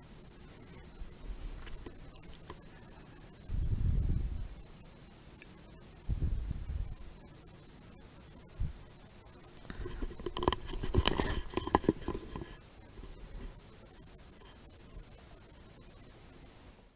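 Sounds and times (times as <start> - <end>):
scratching and clicking: 0.8 - 3.0, 9.6 - 15.7.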